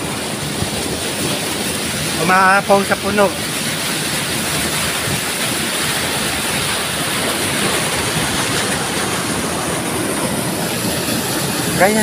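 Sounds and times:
water rushing in canal: 0:00.0 - 0:12.0.

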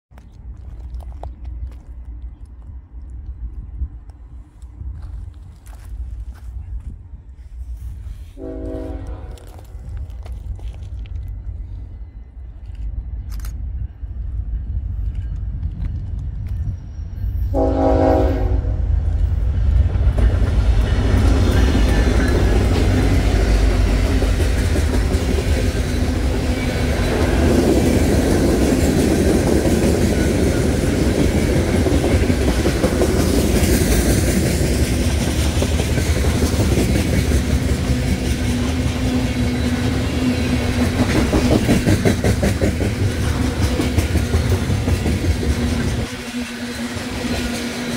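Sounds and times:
diesel freight train passing: 0:00.2 - 0:47.9
train horn blast: 0:08.3 - 0:09.8, 0:17.5 - 0:19.0.

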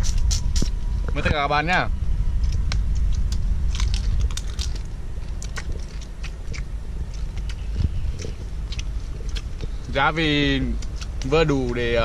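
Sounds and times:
person chewing crunchy food: 0:00.0 - 0:01.1, 0:02.4 - 0:12.0
low rumble: 0:00.0 - 0:12.0.

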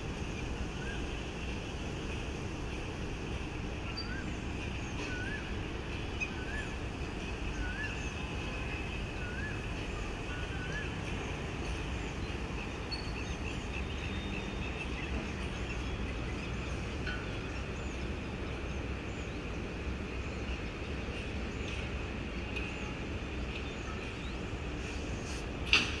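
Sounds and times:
distant city traffic rumble: 0:00.0 - 0:26.0
wavering whistled call: 0:03.9 - 0:04.4, 0:05.0 - 0:05.6, 0:07.4 - 0:11.0.

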